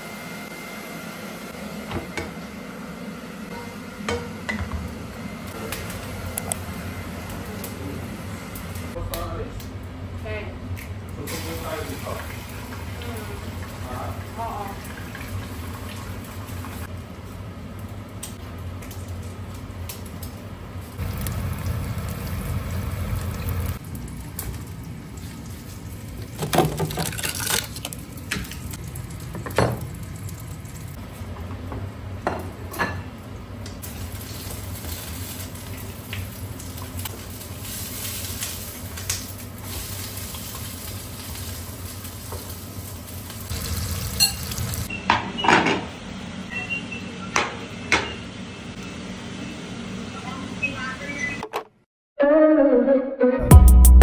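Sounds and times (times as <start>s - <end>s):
food sizzling in a frying pan: 11.2s - 26.5s, 33.8s - 44.9s
pan and utensils clinking: 43.6s - 45.9s.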